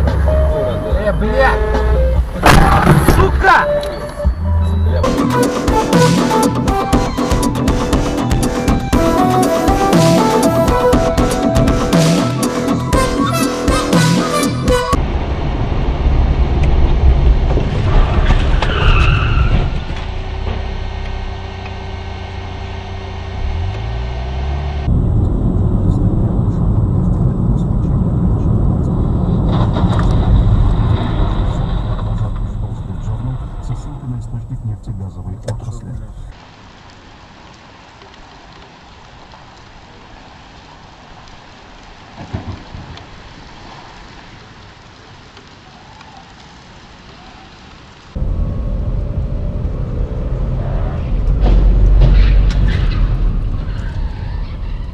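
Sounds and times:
car driving on road: 0.0 - 5.8, 14.7 - 54.9
sudden low thump: 1.8 - 3.4, 51.1 - 53.7
car tyres squealing: 17.9 - 24.9, 50.4 - 54.9.

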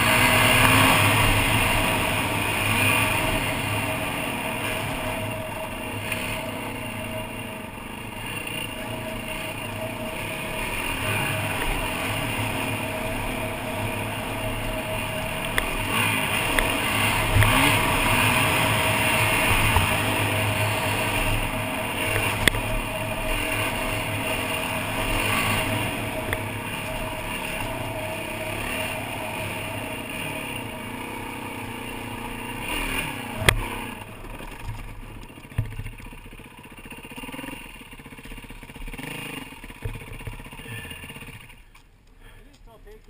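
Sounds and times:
dirt bike engine running: 0.0 - 43.0
sharp knocks from bike: 34.5 - 36.2, 39.7 - 40.6.

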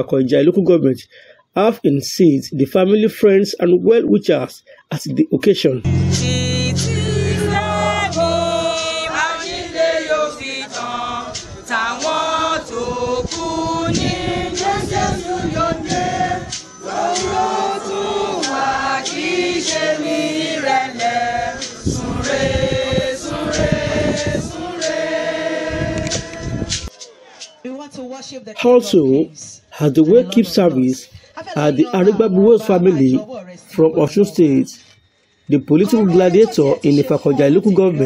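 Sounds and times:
congregation singing a hymn: 5.8 - 26.9.

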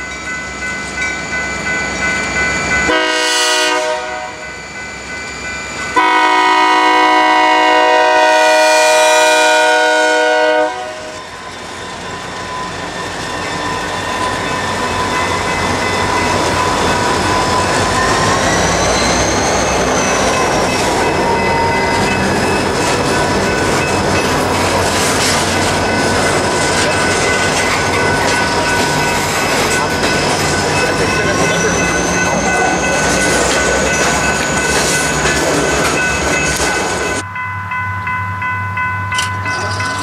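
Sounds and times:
locomotive air horn: 2.9 - 4.4, 6.0 - 11.2
high wheel squeal: 11.0 - 37.2
train wheels clickety-clack: 13.0 - 37.2.

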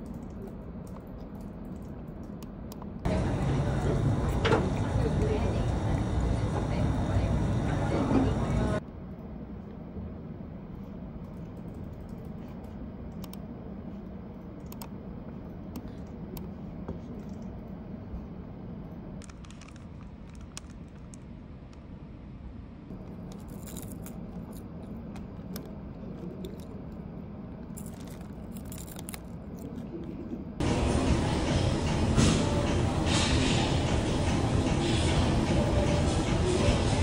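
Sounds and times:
low office hum: 0.0 - 37.0.

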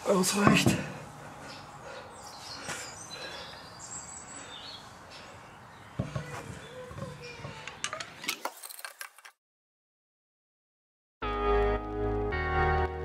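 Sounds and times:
small birds chirping: 0.0 - 8.2.

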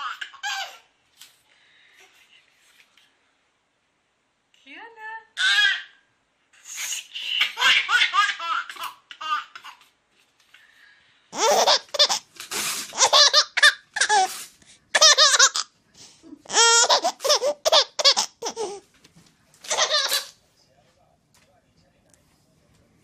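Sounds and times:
babies laughing: 11.4 - 12.3, 12.9 - 14.3, 15.0 - 15.7, 16.4 - 18.8, 19.7 - 20.3.

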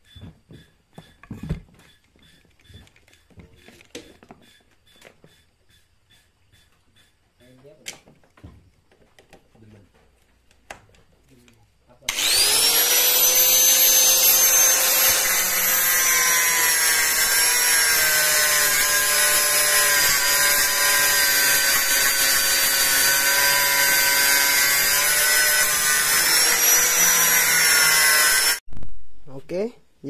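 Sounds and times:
angle grinder grinding metal: 12.0 - 28.6.

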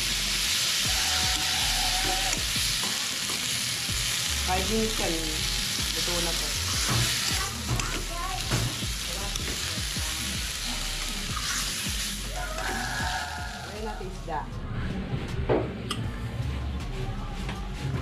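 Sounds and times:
vegetables sizzling in a wok: 0.0 - 14.2.

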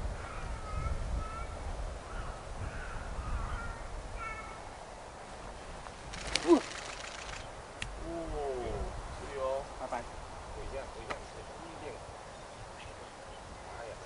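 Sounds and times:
crows cawing: 2.1 - 4.6.

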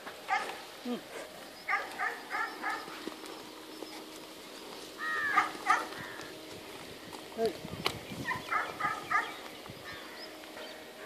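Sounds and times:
faint steady hum: 0.0 - 11.0
dog barking: 0.3 - 0.6, 1.7 - 2.9, 5.3 - 5.9, 8.3 - 9.4.

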